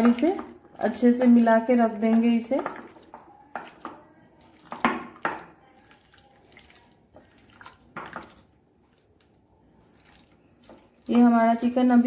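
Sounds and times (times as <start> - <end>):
wet squishes of chicken in marinade: 2.2 - 11.4.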